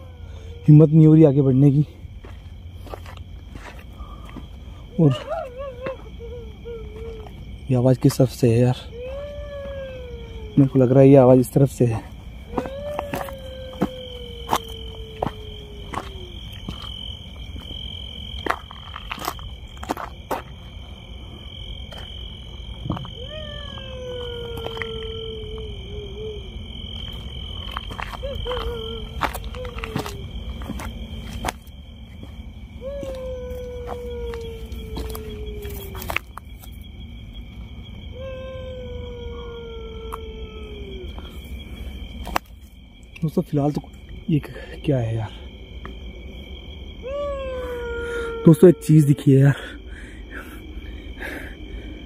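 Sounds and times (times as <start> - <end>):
long wailing cry: 0.0 - 1.8, 4.8 - 17.0, 22.9 - 31.3, 32.7 - 36.4, 38.1 - 41.9, 47.0 - 52.0
crickets chirring: 0.0 - 52.0
high insect trill: 0.0 - 52.0
footsteps crunching on dirt: 2.1 - 6.1, 11.9 - 23.2, 26.9 - 36.9.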